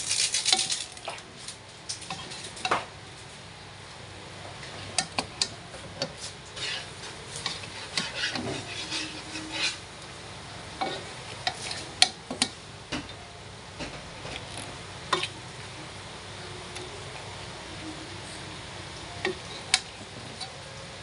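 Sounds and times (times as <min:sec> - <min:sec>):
food sizzling: 0:00.0 - 0:01.4, 0:05.0 - 0:12.9
metal spatula scraping a wok: 0:06.6 - 0:09.8.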